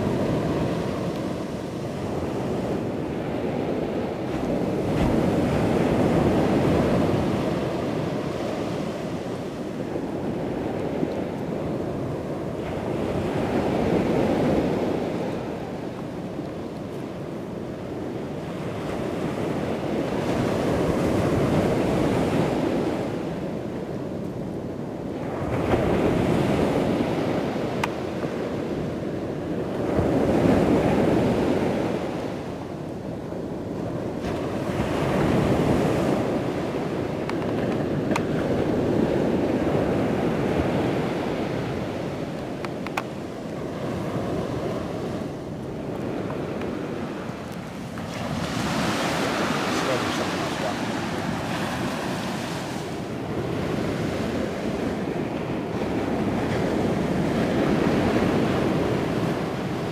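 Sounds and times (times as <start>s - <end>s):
ocean surf breaking: 0.0s - 59.9s
wind on microphone: 0.0s - 59.9s.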